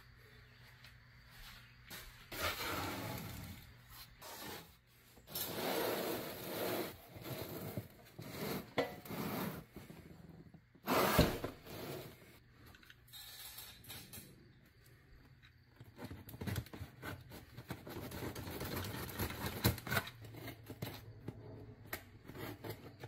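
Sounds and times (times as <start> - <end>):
cardboard box scraping on floor: 2.3 - 10.2, 10.8 - 12.4.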